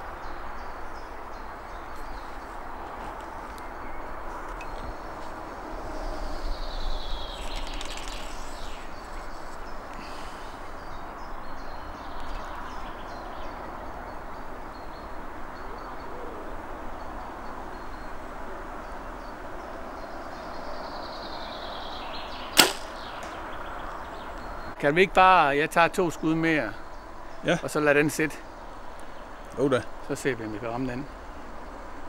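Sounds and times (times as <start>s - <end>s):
woodland birds calling: 0.0s - 31.5s
steady background hiss: 0.0s - 32.0s
brief rustle: 7.2s - 9.7s.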